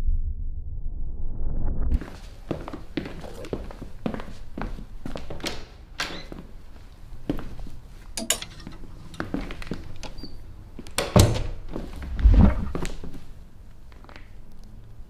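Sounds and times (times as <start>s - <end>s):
heavy thumps: 12.0s - 13.0s.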